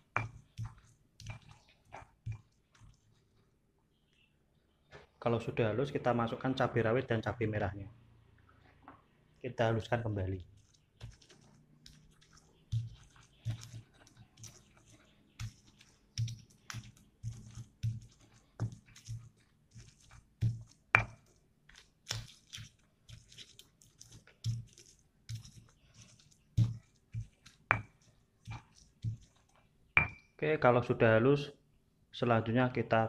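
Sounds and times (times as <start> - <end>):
stone pestle grinding chilies: 0.0 - 3.2, 10.4 - 30.3.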